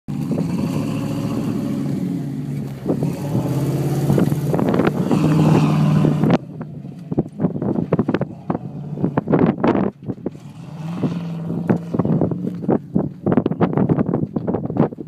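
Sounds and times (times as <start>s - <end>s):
car engine revving hard: 0.1s - 6.6s, 8.0s - 12.8s
knocks and clatter: 6.3s - 10.7s.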